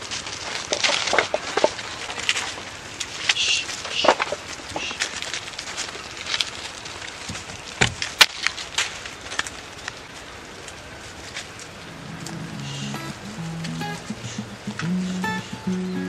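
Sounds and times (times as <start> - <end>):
sheep rustling in dry leaves: 0.0 - 16.0
faint music: 11.0 - 16.0.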